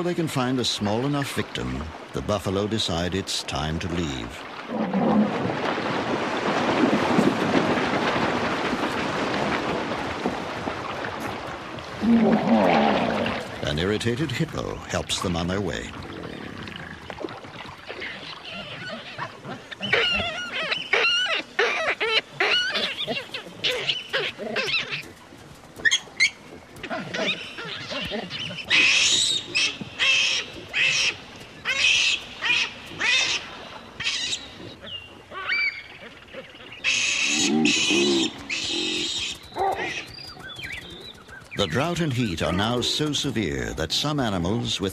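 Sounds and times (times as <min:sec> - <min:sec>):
churning water: 0:00.0 - 0:44.9
animals trampling: 0:04.5 - 0:14.8, 0:15.6 - 0:43.8
baboon shrieking: 0:18.5 - 0:25.0, 0:26.9 - 0:34.4.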